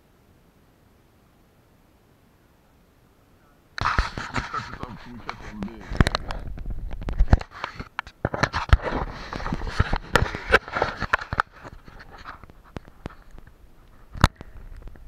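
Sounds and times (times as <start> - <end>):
handling noise on microphone: 3.8 - 15.0.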